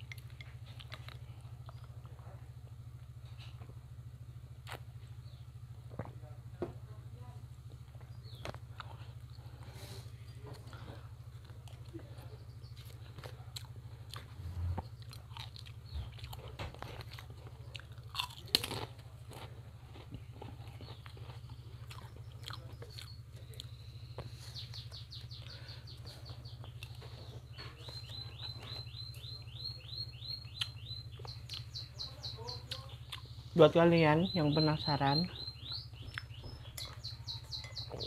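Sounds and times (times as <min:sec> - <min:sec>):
chewing and crunching food: 0:00.0 - 0:06.5, 0:07.5 - 0:38.0
small bird chirping: 0:07.8 - 0:13.2, 0:13.9 - 0:17.9, 0:20.2 - 0:38.0.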